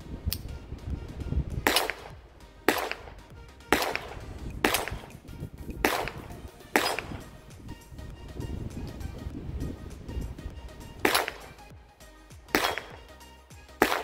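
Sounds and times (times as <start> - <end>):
pistol shots: 1.6 - 5.2, 5.8 - 7.3, 11.0 - 11.6, 12.5 - 13.1, 13.8 - 14.0.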